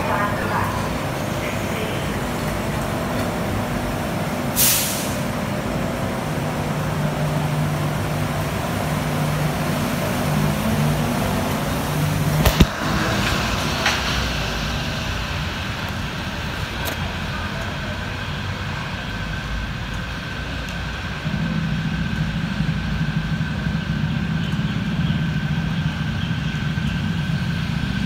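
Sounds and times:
train rolling along guideway: 0.0 - 28.0
train steady low hum: 0.0 - 28.0
train doors hissing shut: 4.5 - 5.4.

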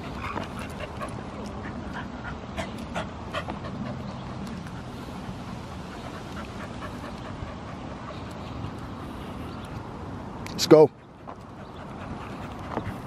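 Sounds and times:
dog panting: 0.0 - 9.5, 10.9 - 13.0.

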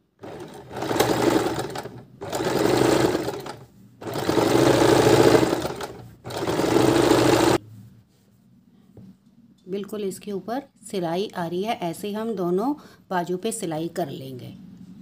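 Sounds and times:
sewing machine stitching: 0.2 - 7.6.

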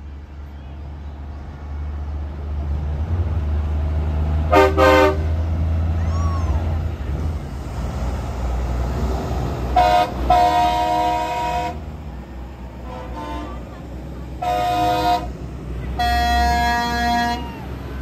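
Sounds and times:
truck diesel engines rumbling: 0.0 - 18.0
truck air horn blasts: 4.5 - 5.4, 9.7 - 11.9, 12.8 - 13.8, 14.4 - 17.5.

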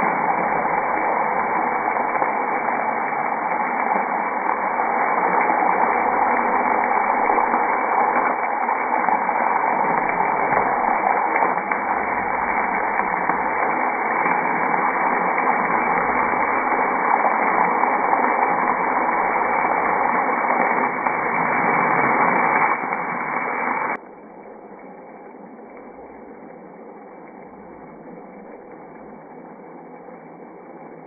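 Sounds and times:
gravy bubbling and hissing: 0.0 - 24.0.

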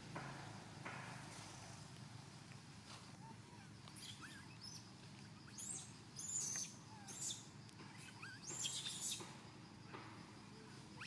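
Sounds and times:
high chirping bird calls: 3.2 - 4.8, 5.4 - 9.2.

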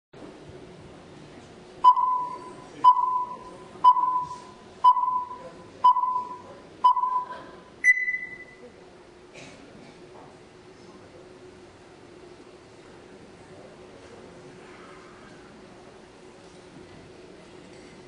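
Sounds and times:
countdown beeps: 1.8 - 8.6
higher-pitched beep: 1.8 - 8.6.

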